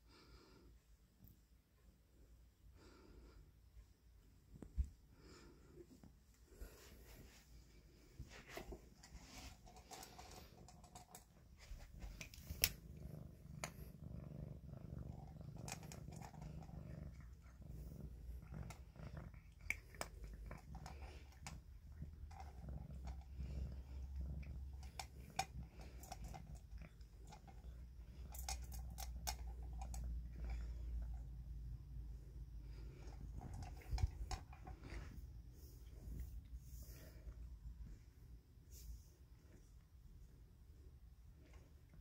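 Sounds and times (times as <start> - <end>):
cat purring: 0.1 - 42.0
eating clicks in metal bowl: 15.2 - 17.5, 24.5 - 30.4.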